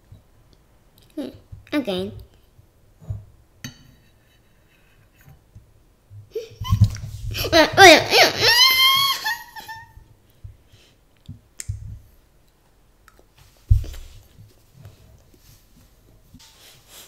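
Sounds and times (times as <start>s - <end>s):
dull thumps: 13.7s - 14.3s.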